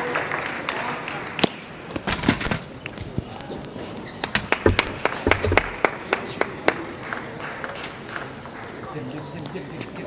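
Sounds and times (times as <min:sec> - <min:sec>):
table tennis balls clicking: 0:02.4 - 0:05.8
dull thumps: 0:04.4 - 0:05.9.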